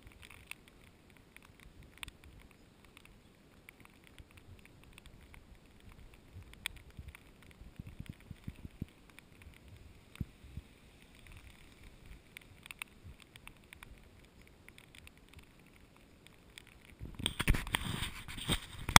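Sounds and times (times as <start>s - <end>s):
rain tapping on camera: 0.0s - 19.0s
hand rubbing and knocking camera: 17.1s - 19.0s.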